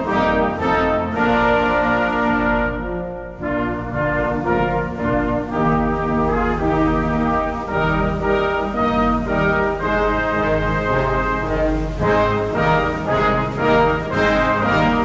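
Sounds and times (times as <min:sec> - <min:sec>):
slow brass chords: 0:00.0 - 0:15.0.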